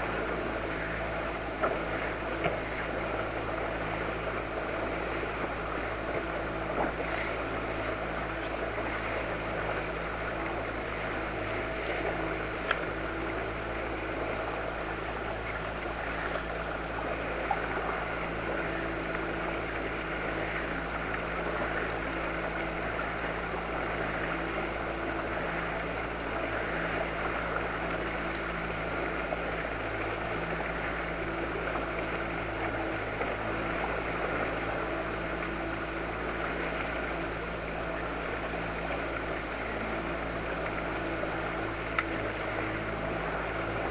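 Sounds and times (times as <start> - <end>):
outboard motor running: 0.0 - 43.9
water rushing past hull: 0.0 - 43.9.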